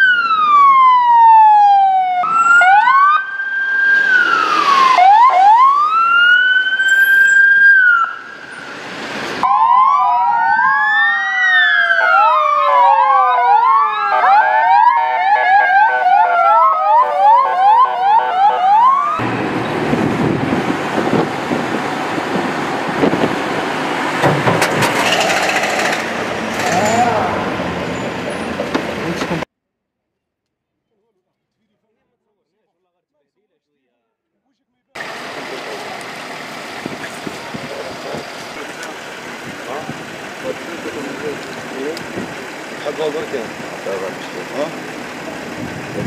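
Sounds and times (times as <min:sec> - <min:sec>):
siren fast yelp: 0:00.0 - 0:08.6, 0:09.4 - 0:19.2
sirens wailing: 0:00.0 - 0:24.2, 0:35.0 - 0:46.0
vehicle engine and road noise: 0:02.1 - 0:09.6, 0:15.5 - 0:29.5, 0:35.0 - 0:46.0.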